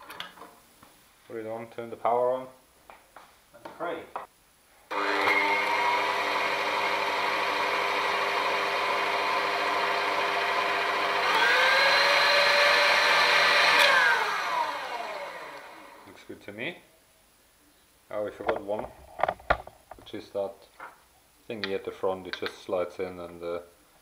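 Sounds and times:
stand mixer motor running: 4.9s - 16.0s.

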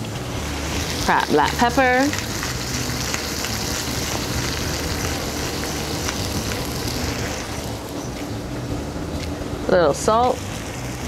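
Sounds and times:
low steady hum: 0.0s - 11.0s
tomatoes sizzling in oil: 0.0s - 11.0s.

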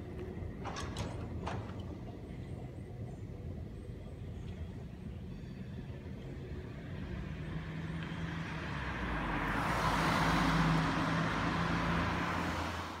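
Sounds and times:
car driving past: 7.2s - 13.0s.

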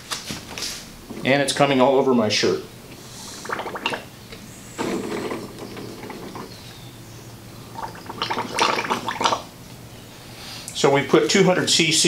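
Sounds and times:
syringe plunger rubbing creak: 4.8s - 6.7s.

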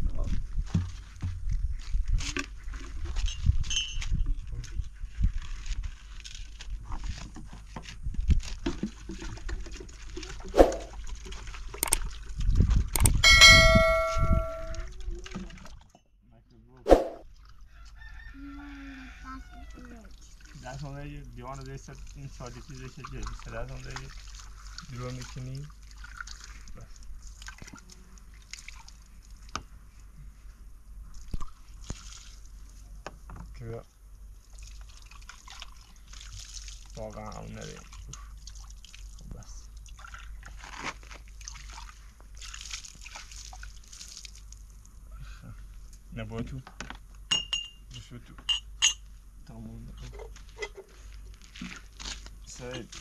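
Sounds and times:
low steady rumble: 12.8s - 15.2s
drinking glasses clinking: 13.2s - 14.9s, 47.3s - 47.8s, 48.5s - 49.0s
water dripping and trickling: 19.7s - 30.1s, 33.6s - 45.0s.

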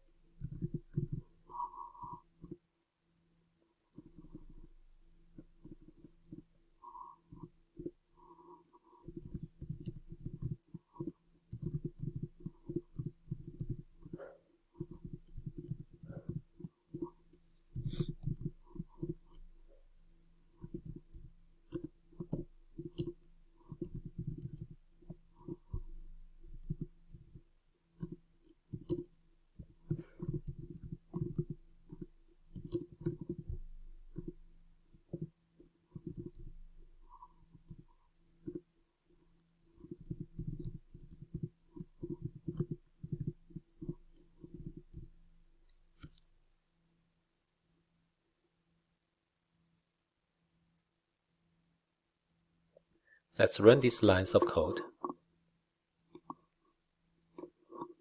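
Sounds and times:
faint steady hum: 0.0s - 58.0s
typing on computer keyboard: 0.4s - 1.2s, 9.1s - 14.2s, 14.8s - 17.1s, 20.6s - 38.6s, 39.8s - 45.2s.

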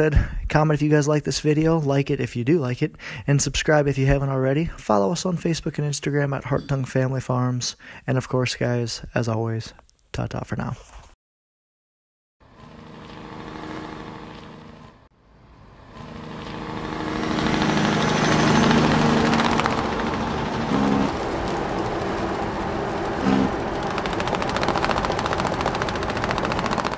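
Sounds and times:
engine running with fast rattle: 12.4s - 26.9s.

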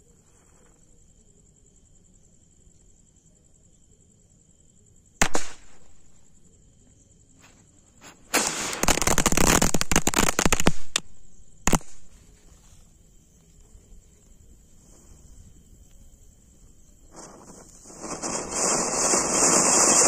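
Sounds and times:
firecracker bang: 5.2s - 6.0s, 8.3s - 12.1s
crackling string of pops: 8.4s - 12.2s.

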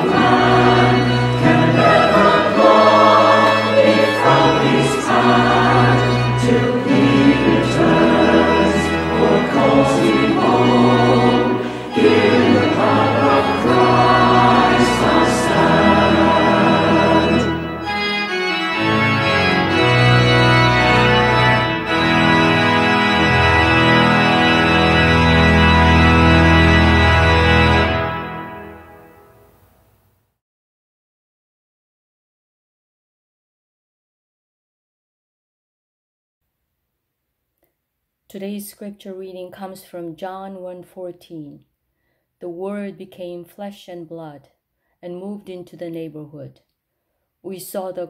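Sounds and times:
choir singing a hymn: 0.0s - 29.0s
church organ playing: 0.0s - 29.6s.

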